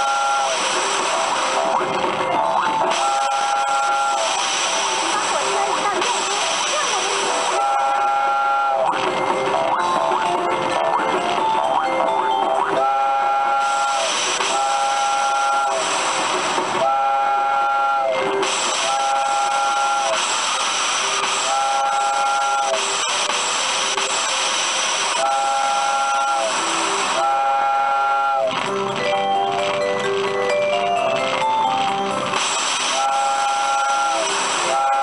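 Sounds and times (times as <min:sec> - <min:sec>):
steam whistle tooting: 0:00.0 - 0:00.6, 0:02.9 - 0:04.8, 0:07.5 - 0:09.0, 0:12.8 - 0:16.0, 0:16.8 - 0:23.3, 0:25.1 - 0:28.6, 0:32.4 - 0:35.0
electronic tones: 0:00.0 - 0:35.0
steady hiss of steam: 0:13.7 - 0:16.7, 0:18.4 - 0:21.6, 0:22.7 - 0:25.6, 0:32.4 - 0:34.8.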